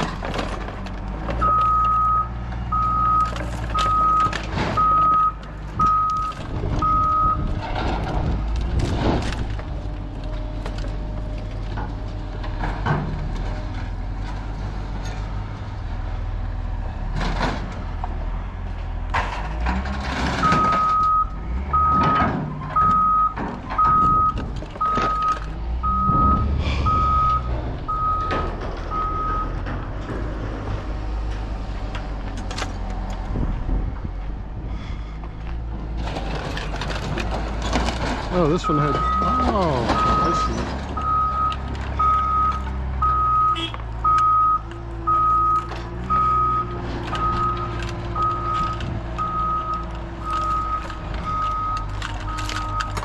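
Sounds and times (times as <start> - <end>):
knocks and clanks: 0.0 - 14.4, 19.0 - 34.1, 35.2 - 53.0
engine running: 0.0 - 53.0
backup alarm beeping: 1.4 - 7.5, 20.4 - 29.6, 38.7 - 53.0.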